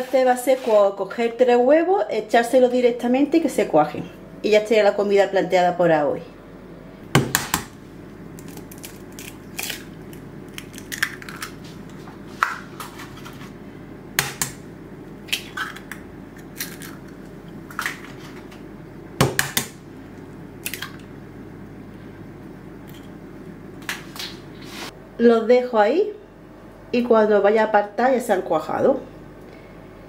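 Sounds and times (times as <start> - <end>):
steady low hum: 0.0 - 30.0
eggs cracking on metal pot: 8.4 - 11.6, 15.2 - 18.2, 20.6 - 21.1.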